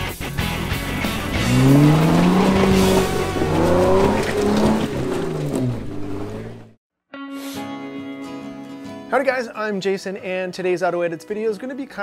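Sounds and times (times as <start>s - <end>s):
engine revving under load: 0.8s - 6.8s.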